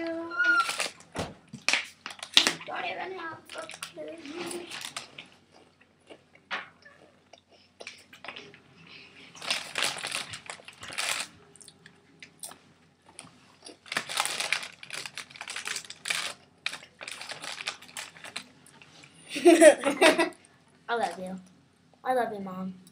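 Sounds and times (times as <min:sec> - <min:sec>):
dry noodles crunching in plastic bag: 0:09.4 - 0:11.4, 0:13.7 - 0:18.5.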